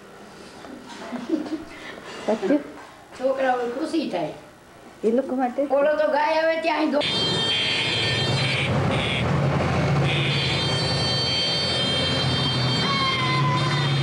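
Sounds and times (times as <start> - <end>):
car horn: 7.0 - 9.4, 10.0 - 14.0
scooters and traffic running: 7.0 - 14.0.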